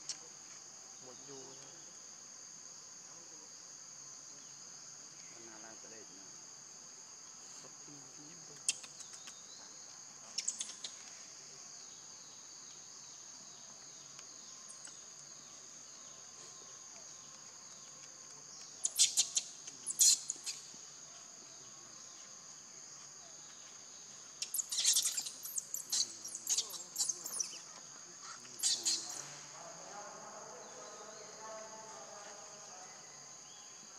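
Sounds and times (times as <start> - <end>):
insects droning: 0.0 - 33.9.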